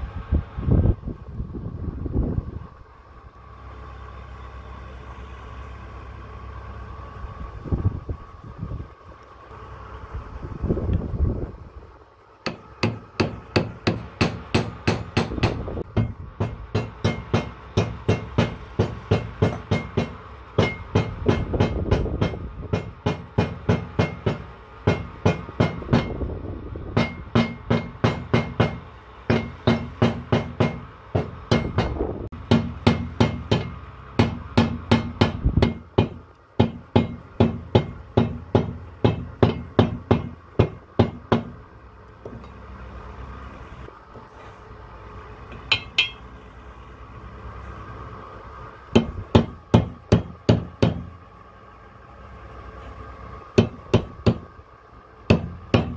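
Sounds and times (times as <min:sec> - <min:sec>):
hammer striking steel blade: 0:45.6 - 0:46.2.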